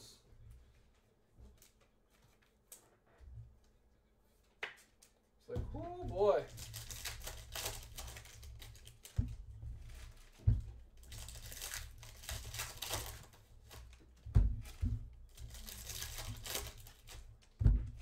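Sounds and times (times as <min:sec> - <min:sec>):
foil wrapper crinkling and tearing: 0:06.5 - 0:09.2, 0:11.0 - 0:14.0, 0:15.3 - 0:17.3.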